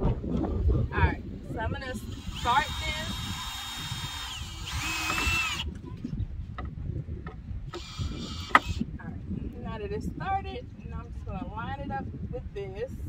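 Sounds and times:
power drill driving screw into wood: 0:02.0 - 0:05.7, 0:07.7 - 0:08.8.

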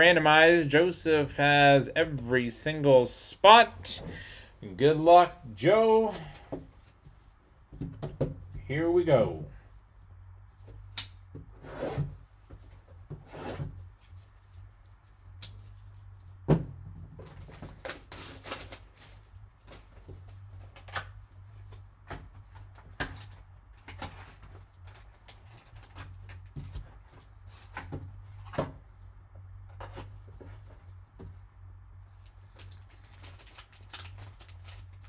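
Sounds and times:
wrapper rustling and crinkling: 0:17.2 - 0:20.9, 0:22.6 - 0:27.7, 0:32.1 - 0:35.0.

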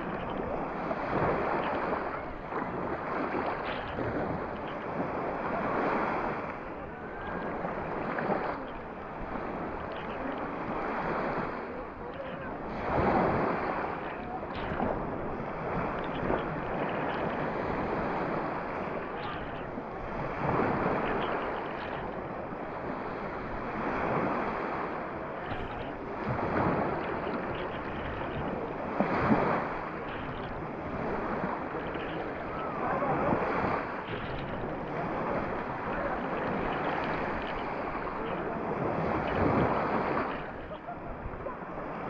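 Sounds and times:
sea waves washing up sand: 0:00.0 - 0:42.0.

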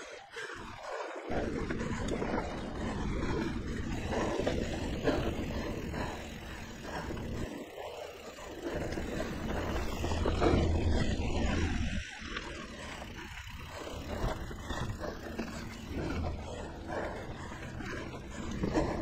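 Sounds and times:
bike rattling over bumps: 0:00.3 - 0:19.0
wind rushing over microphone: 0:01.2 - 0:07.6.

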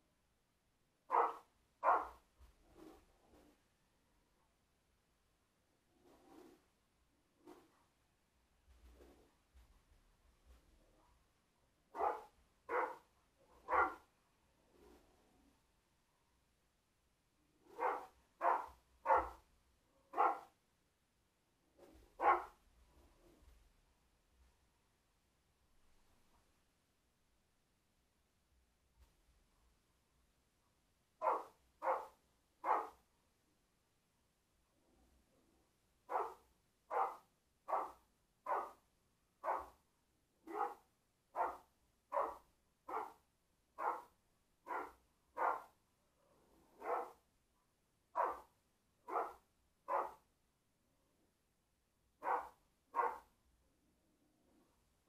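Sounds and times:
dog barking: 0:01.1 - 0:02.2, 0:11.9 - 0:14.1, 0:17.7 - 0:19.4, 0:20.0 - 0:20.6, 0:22.2 - 0:22.6, 0:31.2 - 0:33.0, 0:36.1 - 0:38.8, 0:39.4 - 0:39.8, 0:40.4 - 0:43.2, 0:43.8 - 0:45.8, 0:46.6 - 0:47.2, 0:48.1 - 0:50.2, 0:52.2 - 0:53.3.

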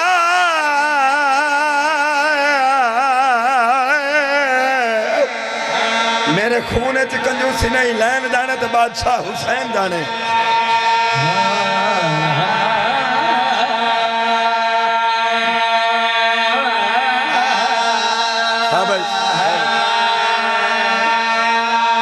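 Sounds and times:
men singing a chant through speakers: 0:00.0 - 0:22.0
held drone note: 0:10.1 - 0:22.0.

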